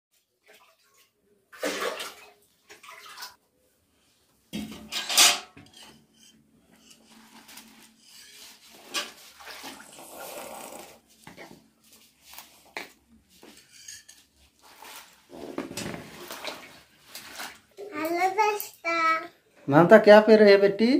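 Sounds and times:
metal pots clanking and scraping: 4.6 - 10.0, 13.4 - 16.9.

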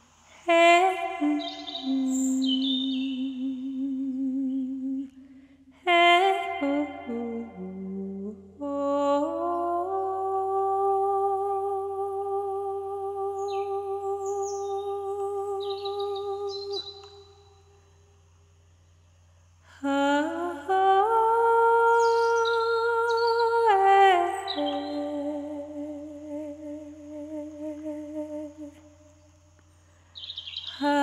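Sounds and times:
person humming long notes: 0.4 - 17.4, 19.6 - 29.0, 30.7 - 31.0
high bird chirps: 1.3 - 3.2, 30.1 - 30.8.

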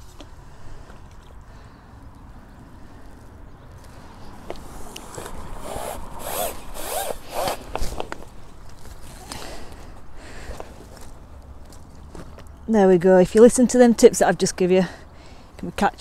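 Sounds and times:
rasping strokes: 4.8 - 7.9.

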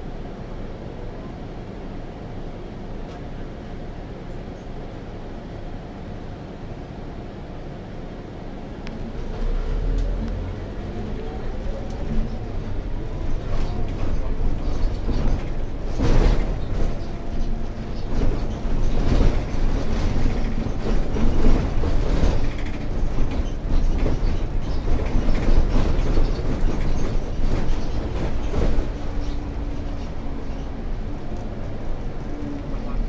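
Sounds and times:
bus diesel engine: 0.0 - 33.0
road noise: 7.6 - 33.0
body knocks creaks and rattles: 13.4 - 30.7.

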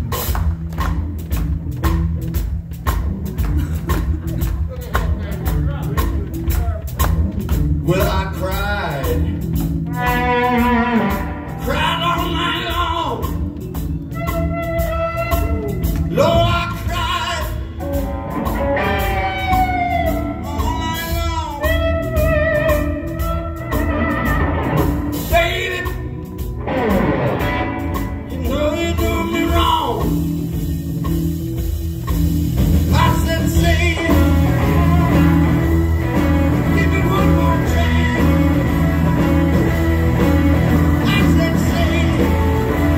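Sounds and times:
blues-rock band playing: 0.0 - 42.9
man singing: 7.8 - 9.5, 11.5 - 13.5, 16.1 - 17.8, 19.0 - 22.7, 25.2 - 26.4, 28.2 - 30.4, 32.9 - 35.4, 36.2 - 39.0, 40.8 - 42.9.

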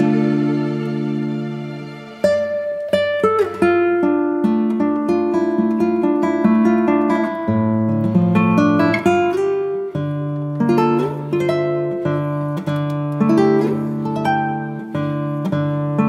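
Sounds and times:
plucked string instrument: 0.0 - 16.0.

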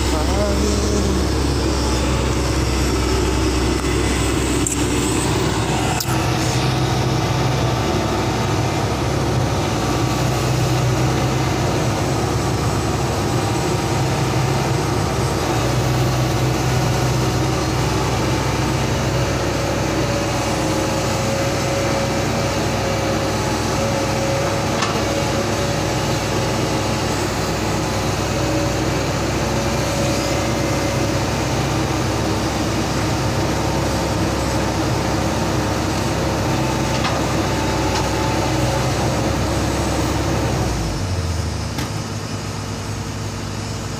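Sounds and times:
steady higher tone: 0.0 - 9.4
excavator diesel engine running: 0.0 - 43.9.

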